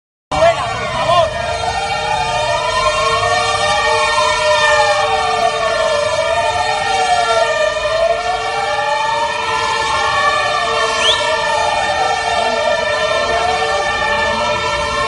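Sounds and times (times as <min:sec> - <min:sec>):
sirens wailing: 0:00.3 - 0:15.0.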